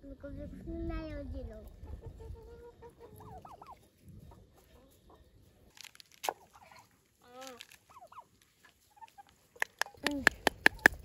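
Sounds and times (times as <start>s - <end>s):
turkeys clucking softly: 1.6s - 11.0s.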